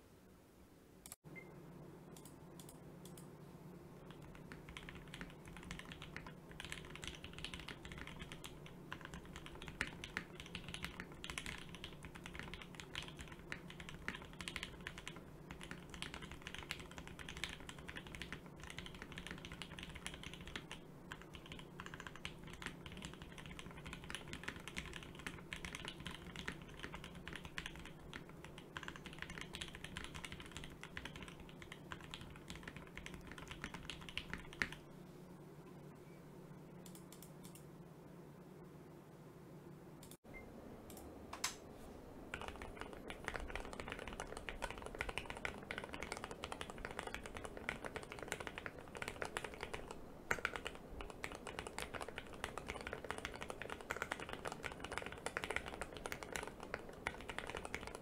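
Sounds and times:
mechanical keyboard typing: 0:04.1 - 0:34.8, 0:42.3 - 0:58.0.

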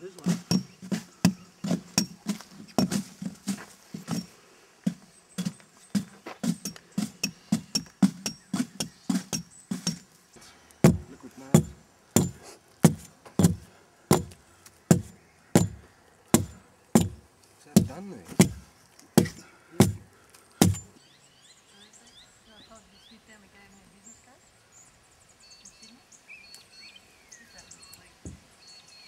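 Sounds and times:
sharp chopping knocks: 0:05.4 - 0:10.0, 0:10.8 - 0:17.2, 0:17.8 - 0:20.0, 0:20.6 - 0:20.9.

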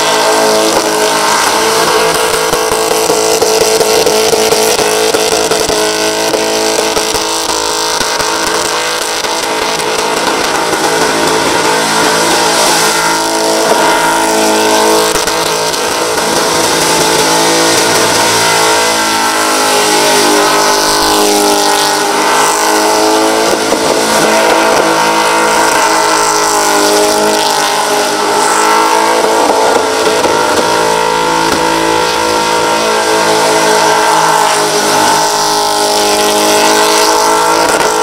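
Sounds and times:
car engine revving near limiter: 0:00.0 - 0:38.0.

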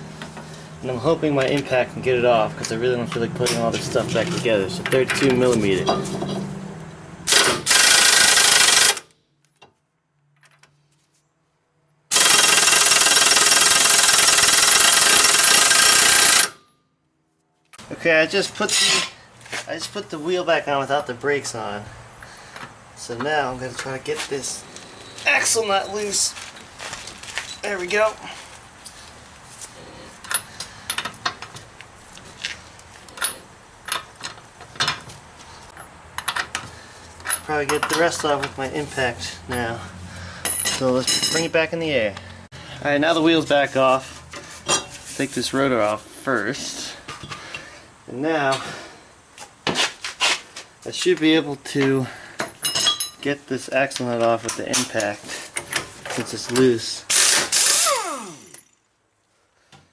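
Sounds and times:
impact wrench hammering: 0:12.1 - 0:16.6.

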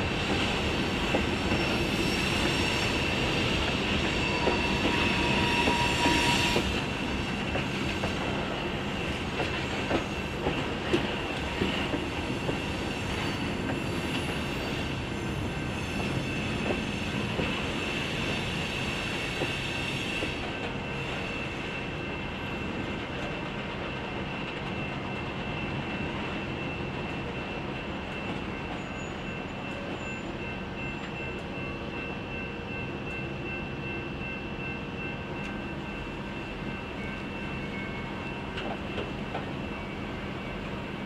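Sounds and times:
high-pitched wheel squeal: 0:01.4 - 0:03.2, 0:03.9 - 0:06.8, 0:12.9 - 0:14.8.

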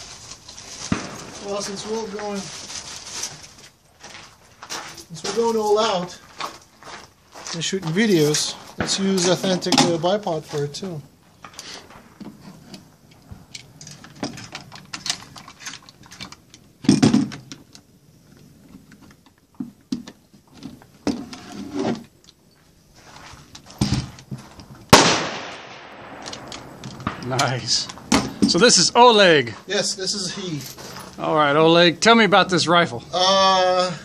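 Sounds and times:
rifle metal clicks and rattles: 0:13.0 - 0:19.4, 0:26.2 - 0:28.1.

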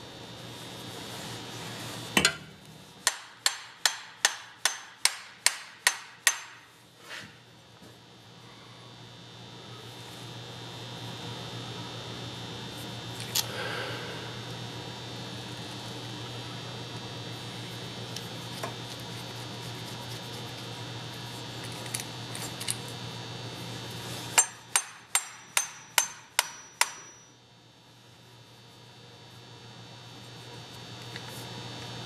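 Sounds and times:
electrical hum: 0:00.0 - 0:32.0
hammer tapping on metal: 0:02.2 - 0:06.6, 0:24.4 - 0:27.3.

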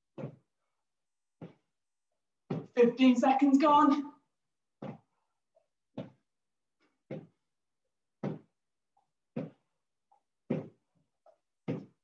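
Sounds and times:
feet thudding on floor: 0:00.1 - 0:00.5, 0:02.5 - 0:02.8, 0:04.8 - 0:05.1, 0:05.9 - 0:06.2, 0:07.0 - 0:07.4, 0:08.2 - 0:08.6, 0:09.3 - 0:09.7, 0:10.4 - 0:10.9, 0:11.6 - 0:12.0.

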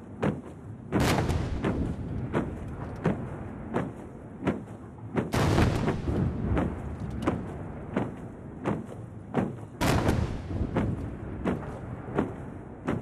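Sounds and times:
salute cannons firing: 0:01.0 - 0:03.0, 0:05.3 - 0:07.5, 0:09.8 - 0:12.4
heavy boom with rolling echo: 0:05.4 - 0:07.8.

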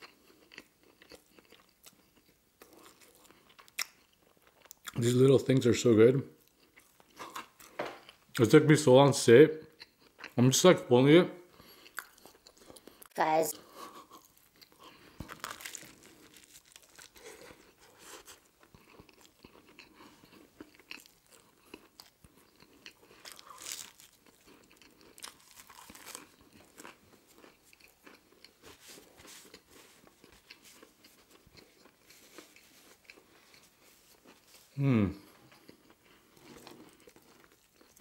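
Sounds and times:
biting and chewing sandwich: 0:13.8 - 0:38.0.

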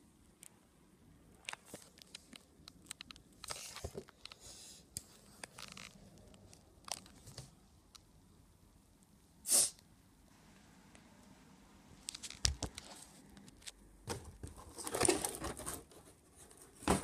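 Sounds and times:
cardboard box clicks and rustles: 0:14.1 - 0:17.0
cardboard box scrape: 0:14.6 - 0:16.0.

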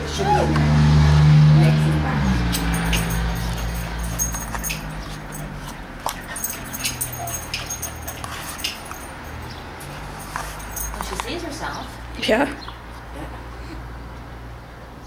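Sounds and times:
dog whining: 0:06.3 - 0:08.2.

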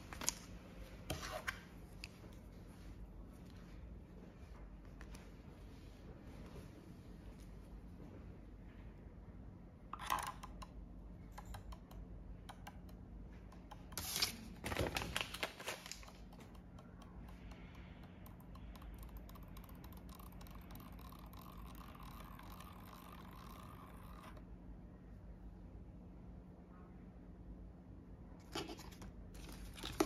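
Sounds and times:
plastic wrappers crinkling: 0:14.0 - 0:16.4.

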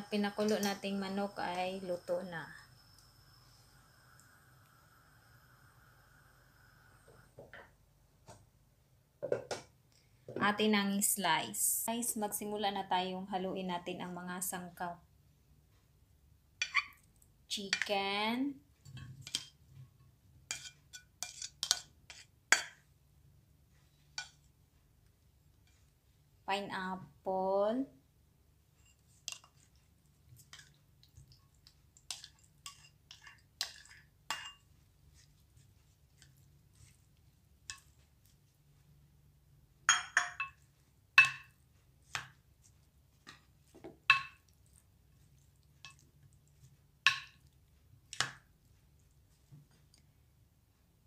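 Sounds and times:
spoon clinking against ceramic bowl: 0:33.8 - 0:34.7, 0:39.9 - 0:40.6.

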